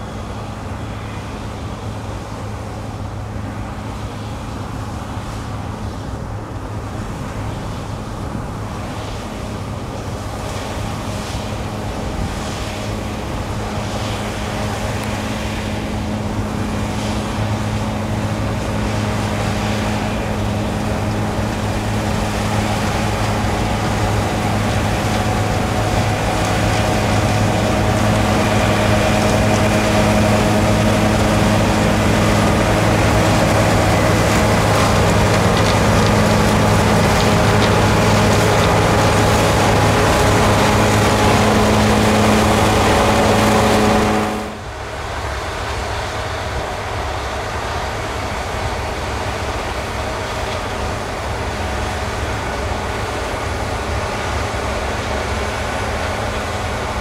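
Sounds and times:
combine harvester diesel hum: 0.0 - 57.0
threshing machinery rushing: 19.9 - 44.6.

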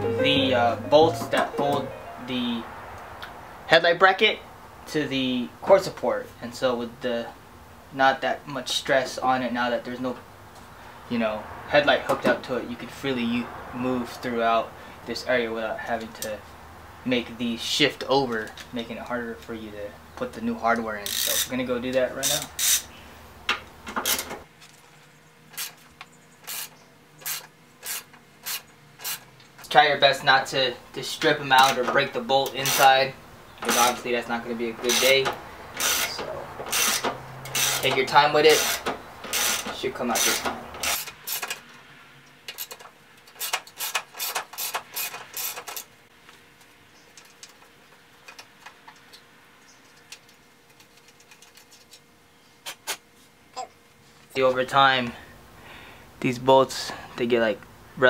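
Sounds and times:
ratchet wrench clicking: 22.3 - 22.8, 26.5 - 29.2, 35.8 - 37.9, 38.6 - 41.6, 42.5 - 45.9
ratchet pawl clicking: 26.5 - 29.2, 35.8 - 37.9.

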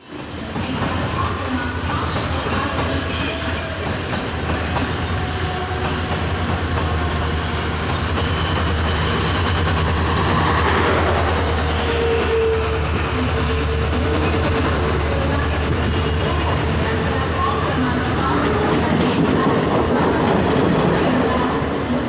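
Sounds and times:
coaches rolling over rails: 0.0 - 22.0
diesel locomotive engine throbbing: 0.1 - 22.0
wheel squeal: 11.4 - 14.4.

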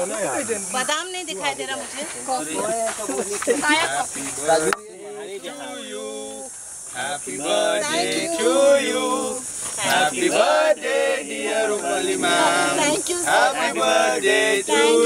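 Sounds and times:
group singing without instruments: 3.6 - 15.0.

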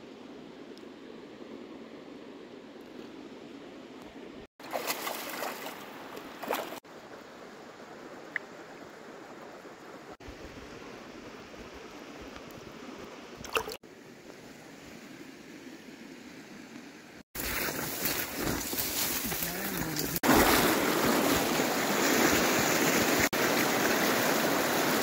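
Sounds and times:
shallow river water running: 0.0 - 25.0
water splashing: 4.6 - 6.8, 13.4 - 13.8, 17.4 - 25.0.

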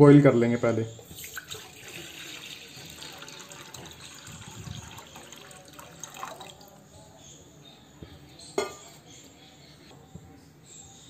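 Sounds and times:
water pouring into steel pan: 1.2 - 6.7.

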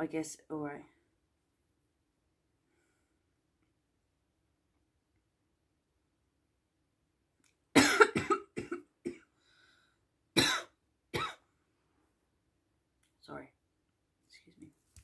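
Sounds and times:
person coughing: 7.8 - 9.3, 10.4 - 11.4.

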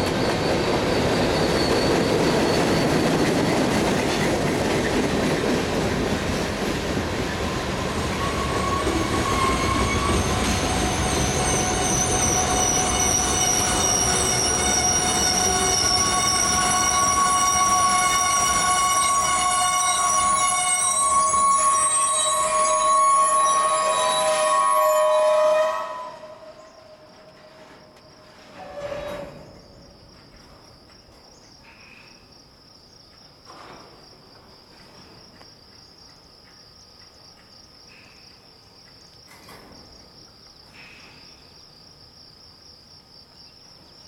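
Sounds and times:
train wheels squealing: 0.0 - 5.3, 7.3 - 32.2
insect trill: 7.5 - 44.0.

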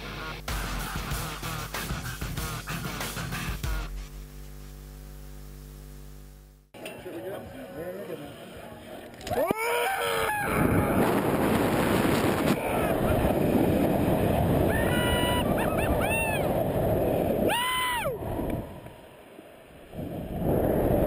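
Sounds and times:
high scream: 9.3 - 11.1, 14.7 - 16.6, 17.4 - 18.2
wind rushing over microphone: 10.3 - 19.1, 19.7 - 21.0
short high yells: 17.4 - 18.2.

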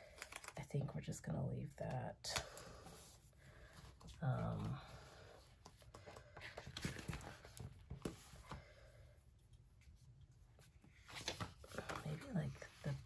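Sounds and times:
paper rustling: 5.7 - 8.6, 10.6 - 13.0.

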